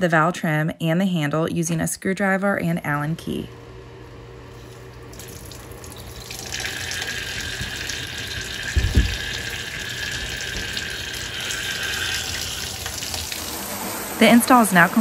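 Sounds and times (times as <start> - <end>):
water running into bathtub: 4.6 - 15.0
low thump: 8.7 - 9.4.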